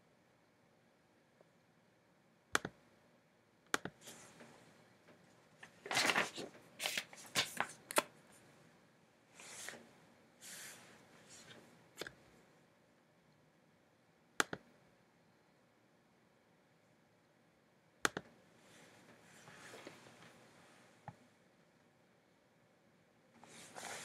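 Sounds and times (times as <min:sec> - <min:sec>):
rustling at a desk: 0:03.9 - 0:08.6, 0:09.3 - 0:11.8, 0:18.6 - 0:21.2, 0:23.4 - 0:24.0.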